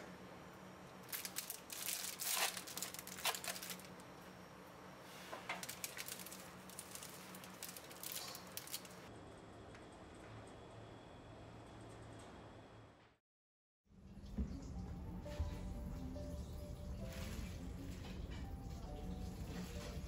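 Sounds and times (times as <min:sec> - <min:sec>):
pastry crust crackling: 0:01.0 - 0:04.2, 0:05.5 - 0:09.1.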